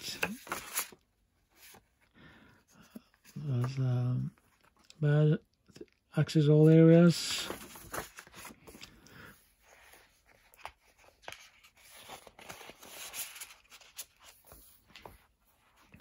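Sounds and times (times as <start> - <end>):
paper rustling: 0.0 - 1.9, 7.2 - 16.0.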